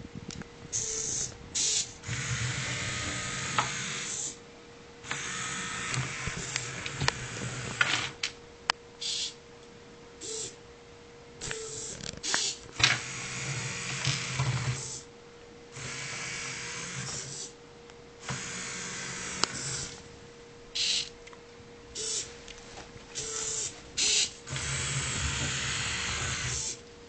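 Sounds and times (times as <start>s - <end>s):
small electric motors whirring: 0.8s - 4.4s, 5.1s - 8.2s, 11.4s - 15.1s, 15.8s - 17.6s, 18.2s - 20.0s, 20.8s - 21.2s, 22.0s - 22.3s, 23.2s - 26.9s.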